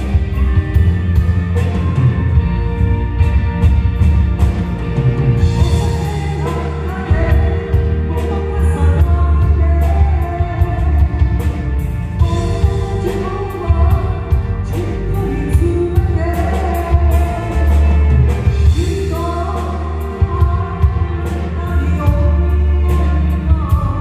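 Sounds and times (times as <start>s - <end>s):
heavy bass line: 0.0s - 24.0s
keyboard: 0.0s - 24.0s
woman singing into microphone: 5.5s - 11.6s, 12.2s - 24.0s.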